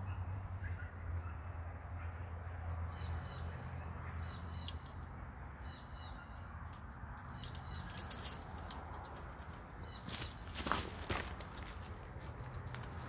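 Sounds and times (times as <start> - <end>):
steel chain clinking: 6.7 - 10.4.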